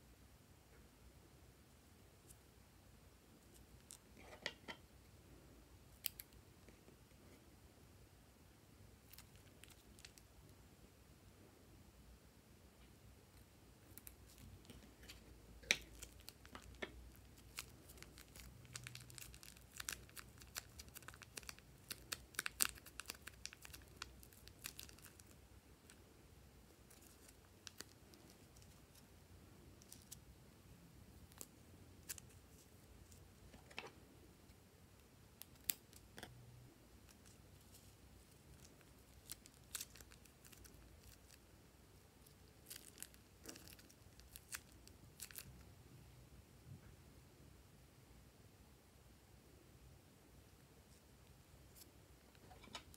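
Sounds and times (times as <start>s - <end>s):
plastic bags crinkling: 15.7s - 25.3s.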